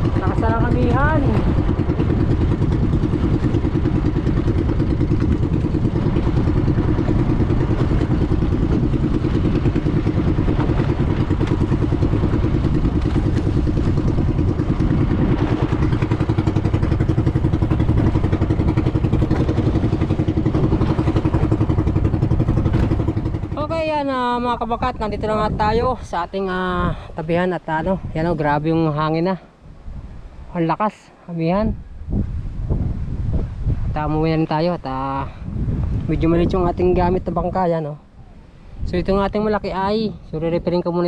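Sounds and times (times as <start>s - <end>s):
boat engine putter: 0.0s - 28.8s.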